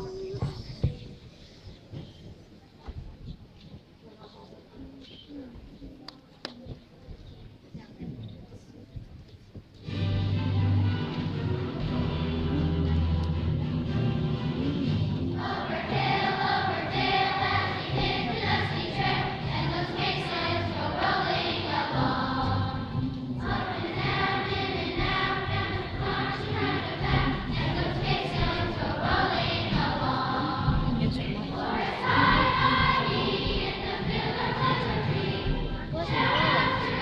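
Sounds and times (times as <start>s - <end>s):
children's choir singing: 15.3s - 37.0s.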